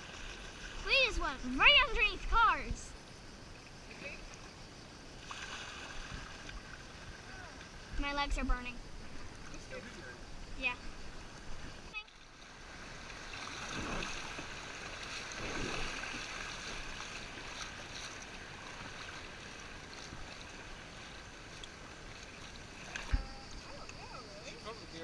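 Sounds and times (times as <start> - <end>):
paddle strokes in water: 0.0 - 1.0, 11.3 - 24.0
rushing river water: 0.0 - 2.7, 9.0 - 23.8.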